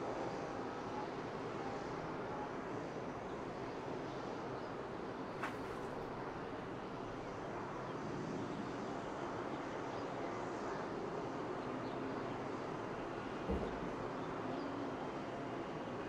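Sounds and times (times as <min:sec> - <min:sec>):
outdoor hum and hiss: 0:00.0 - 0:16.0.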